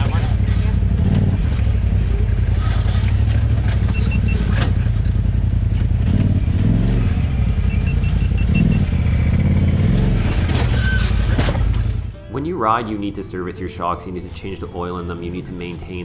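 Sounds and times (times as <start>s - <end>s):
suspension squeaks: 0.0s - 12.1s
utility vehicle engine running: 0.0s - 12.2s.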